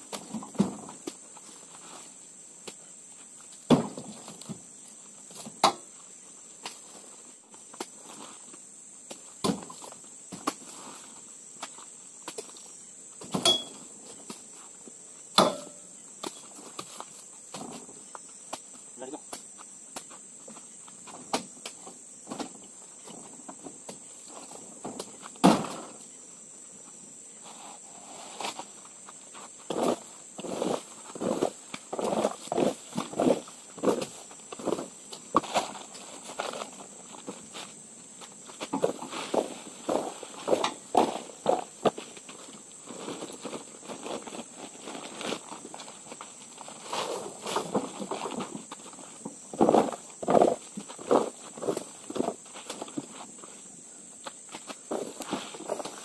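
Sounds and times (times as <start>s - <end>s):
high insect drone: 0.0s - 56.0s
fruit bunches thudding into truck bed: 0.2s - 1.0s, 3.7s - 4.6s, 13.2s - 13.8s, 24.8s - 26.0s
knocks and thuds on truck bed: 24.8s - 25.9s.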